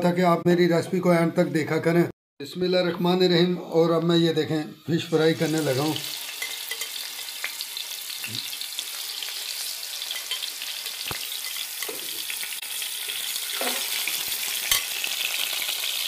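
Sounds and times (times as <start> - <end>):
fish sizzling in hot oil: 5.1 - 16.0.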